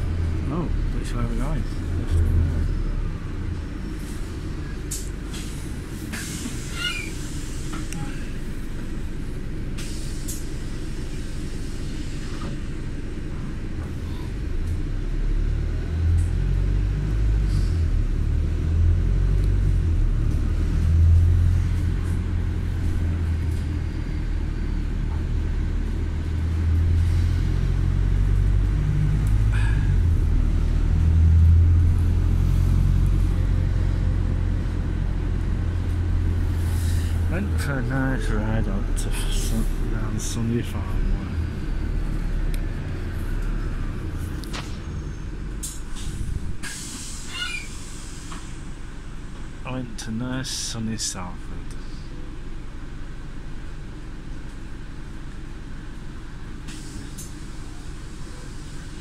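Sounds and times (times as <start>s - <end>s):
road vehicle rumbling: 0.0s - 59.0s.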